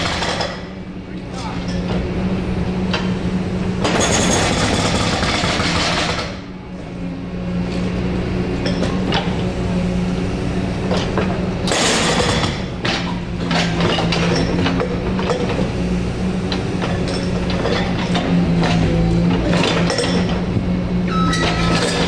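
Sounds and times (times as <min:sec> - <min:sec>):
diesel engine running: 0:00.0 - 0:22.0
hydraulic breaker hammering: 0:16.5 - 0:22.0.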